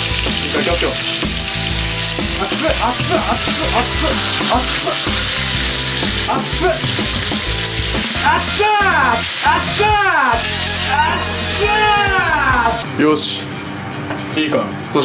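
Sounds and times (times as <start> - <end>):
meat sizzling in a pan: 0.0 - 12.8
metal tongs turning meat: 0.0 - 12.8
background music: 0.0 - 15.0
person crying out: 2.8 - 5.3, 6.2 - 7.0, 8.2 - 12.8.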